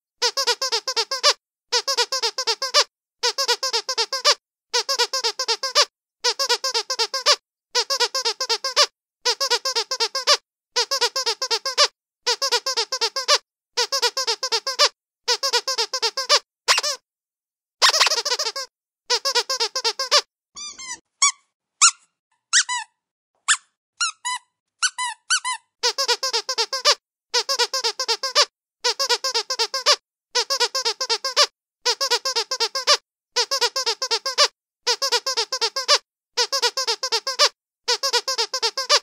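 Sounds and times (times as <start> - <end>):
squeaky dog toy squeaking: 0.2 - 17.0, 17.8 - 39.0.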